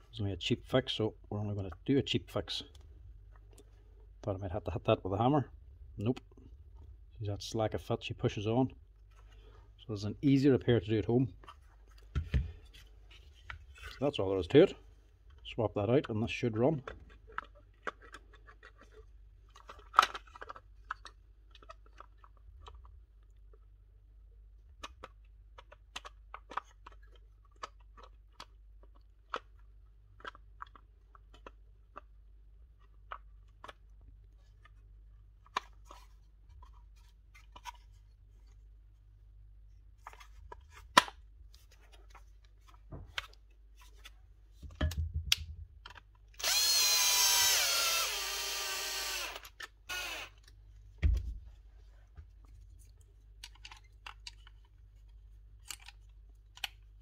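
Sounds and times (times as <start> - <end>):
plastic tool parts clicking: 16.8 - 23.3, 24.8 - 36.1, 44.8 - 50.6, 53.4 - 57.0
small electric power tool running: 46.4 - 50.4.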